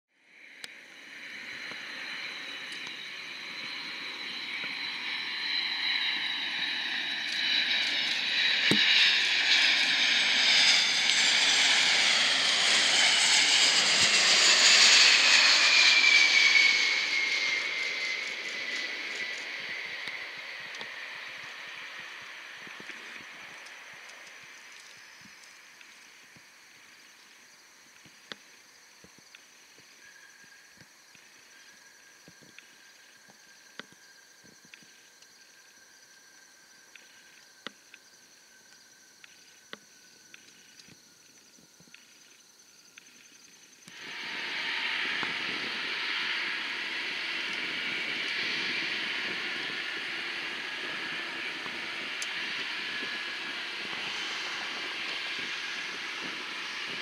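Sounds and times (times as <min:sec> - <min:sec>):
jet engines running: 0:00.5 - 0:27.2, 0:43.8 - 0:57.0.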